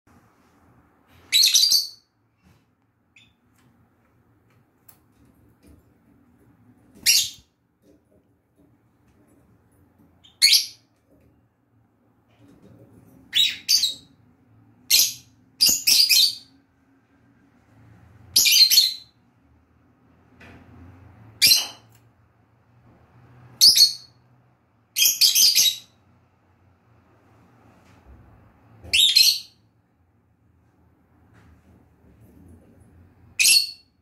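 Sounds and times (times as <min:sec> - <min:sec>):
lovebird chirping: 0:01.2 - 0:02.1, 0:03.1 - 0:03.4, 0:07.0 - 0:07.5, 0:10.2 - 0:10.9, 0:13.3 - 0:14.2, 0:14.8 - 0:16.5, 0:18.4 - 0:19.2, 0:23.6 - 0:24.2, 0:24.9 - 0:26.0, 0:28.9 - 0:29.6, 0:33.4 - 0:34.0.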